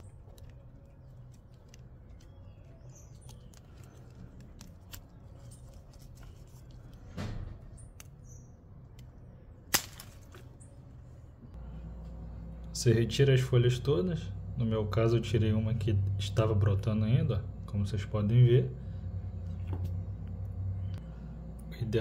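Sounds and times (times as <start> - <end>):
plant stem rustling: 0.0 - 7.1
pruning snip: 9.7 - 10.5.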